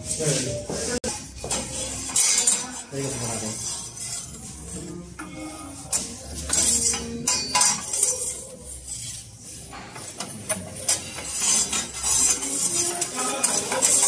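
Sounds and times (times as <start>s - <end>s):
metal peel scraping stone: 5.9s - 14.0s.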